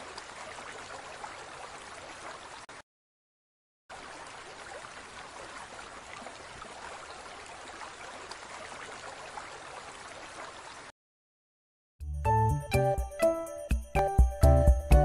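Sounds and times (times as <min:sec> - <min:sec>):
water trickling and rippling: 0:00.0 - 0:02.8, 0:03.9 - 0:10.9.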